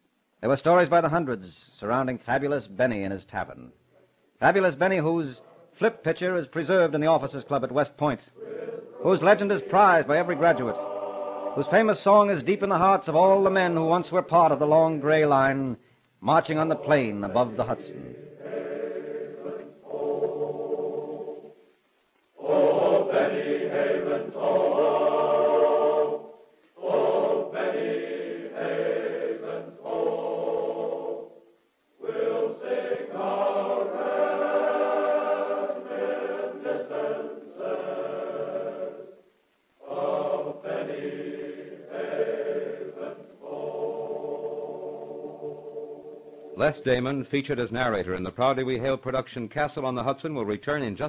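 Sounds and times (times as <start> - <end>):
choir singing: 8.3 - 13.8, 16.3 - 21.7, 22.3 - 46.7.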